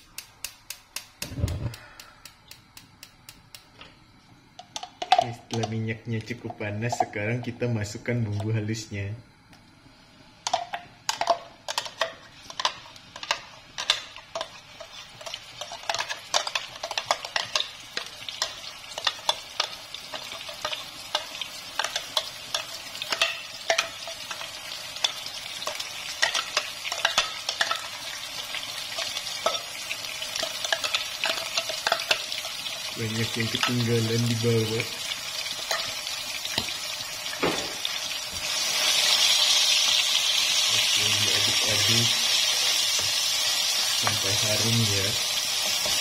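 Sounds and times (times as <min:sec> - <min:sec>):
paste sizzling in hot oil: 0:10.0 - 0:46.0.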